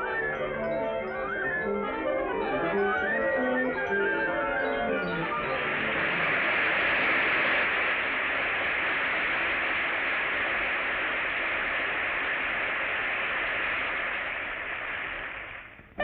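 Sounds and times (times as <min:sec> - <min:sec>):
audience applauding: 0:01.4 - 0:14.0.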